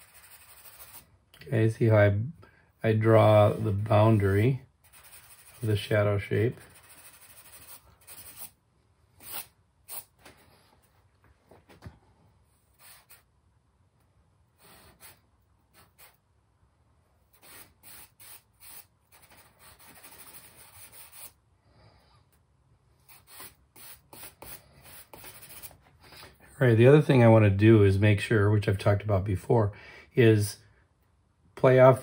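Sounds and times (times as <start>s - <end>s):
charcoal scratching on paper: 0.0s - 1.1s, 3.5s - 6.0s, 6.6s - 8.6s, 9.2s - 10.2s, 14.6s - 16.2s, 17.3s - 21.4s, 23.0s - 25.8s.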